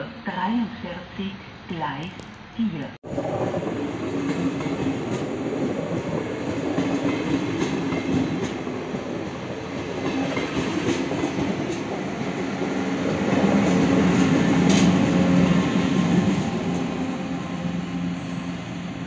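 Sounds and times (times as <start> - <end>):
train low hum: 0.0 - 19.0
train wheels clicking over rail joints: 13.4 - 15.3.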